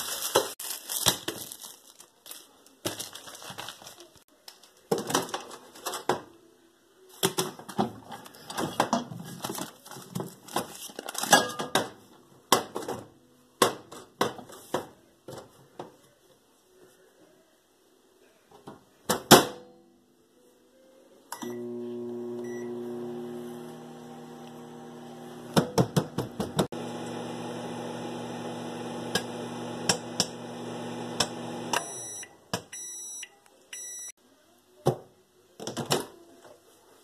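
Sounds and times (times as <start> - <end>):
microwave timer beeps: 21.3 - 23.4, 31.1 - 34.1
microwave oven humming: 21.4 - 25.6, 26.2 - 32.0.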